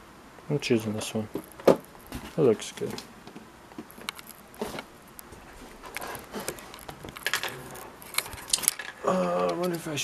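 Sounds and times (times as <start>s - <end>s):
small objects being handled: 3.7s - 9.8s.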